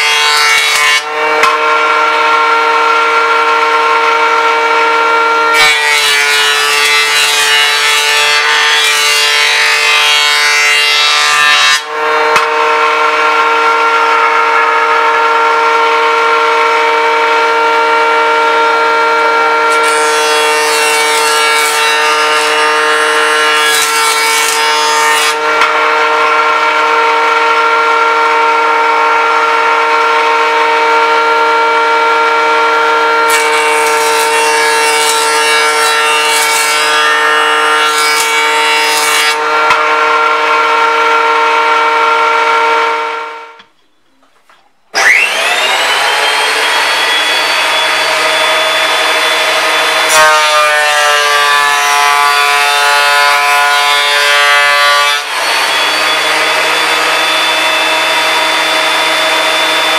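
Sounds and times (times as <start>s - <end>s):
board cutting rasp: 0.0s - 14.5s, 15.3s - 26.6s, 31.5s - 42.6s, 45.0s - 59.9s
jointer motor whine: 39.4s - 43.7s, 44.9s - 51.3s, 54.0s - 59.9s.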